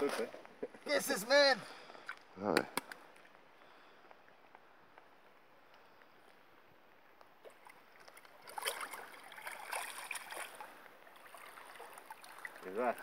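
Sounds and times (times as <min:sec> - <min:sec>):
water splashing: 0:07.4 - 0:13.0.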